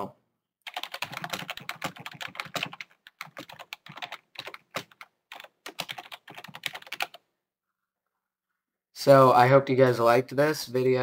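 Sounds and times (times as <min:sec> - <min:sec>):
typing on computer keyboard: 0:00.7 - 0:07.2.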